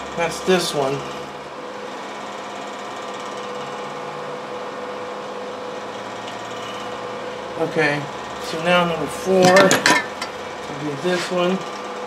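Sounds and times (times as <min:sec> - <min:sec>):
small motor humming: 0:00.0 - 0:09.1.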